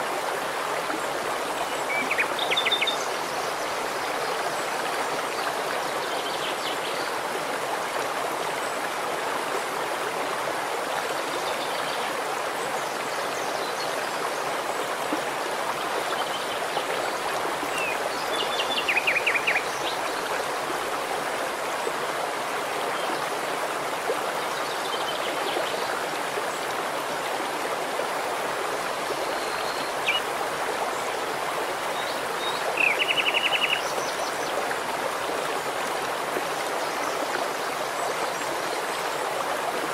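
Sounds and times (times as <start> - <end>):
stream running over rocks: 0.0 - 39.9.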